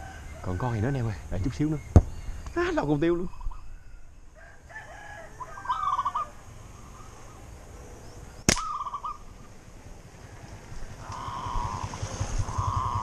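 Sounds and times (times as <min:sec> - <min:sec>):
rooster crowing: 0:00.0 - 0:01.2, 0:03.6 - 0:06.4, 0:10.2 - 0:11.9
sharp snap: 0:08.5 - 0:08.8.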